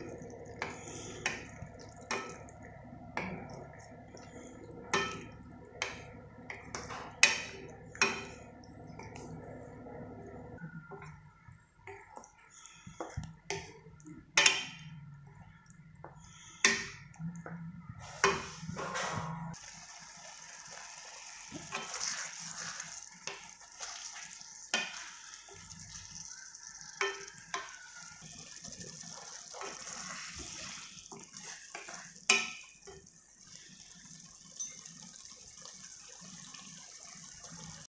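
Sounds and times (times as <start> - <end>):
pan sizzling: 0.0 - 37.9
wooden spatula scraping a pan: 21.5 - 25.9, 29.1 - 32.7.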